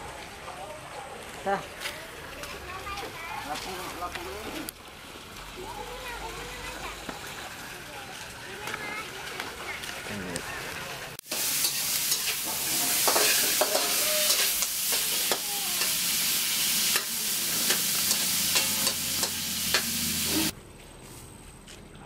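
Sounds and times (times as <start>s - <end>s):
meat sizzling in a wok: 11.2s - 20.5s
metal spoon scraping a pan: 11.3s - 20.5s.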